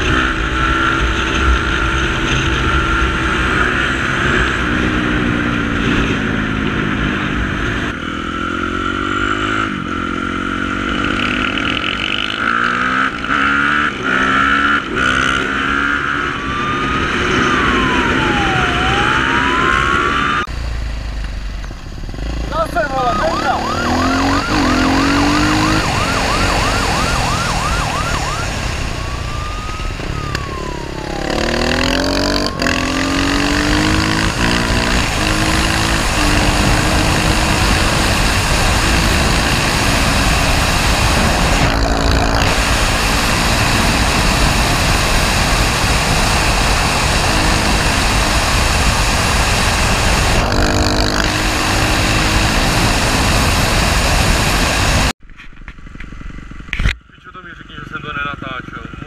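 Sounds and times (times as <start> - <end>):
police siren: 0.0 - 6.0, 14.1 - 20.5, 22.5 - 50.6
dirt bike engine revving: 0.0 - 21.2, 21.8 - 55.2
wind rushing: 23.5 - 55.1.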